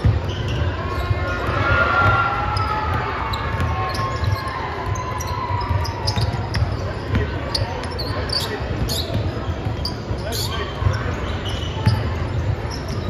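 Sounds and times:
basketball bouncing on gym floor: 0:00.0 - 0:13.0
short squeaks: 0:00.2 - 0:01.5, 0:03.3 - 0:12.1, 0:12.7 - 0:13.0.

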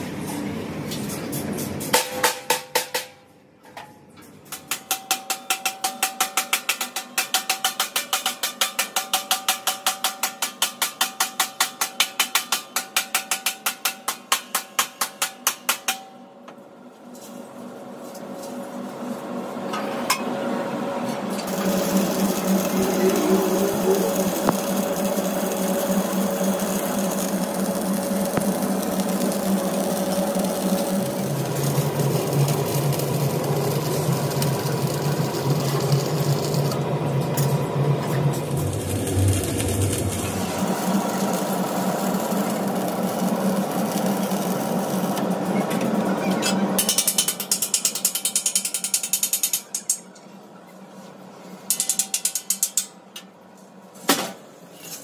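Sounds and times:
arc welder crackling buzz: 0:20.9 - 0:46.1.

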